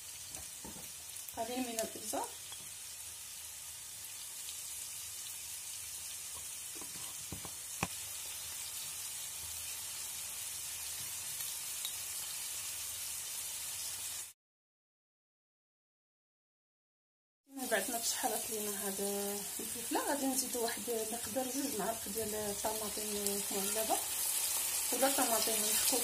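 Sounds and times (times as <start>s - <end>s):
vegetables sizzling in a frying pan: 0.0s - 14.4s, 17.5s - 26.0s.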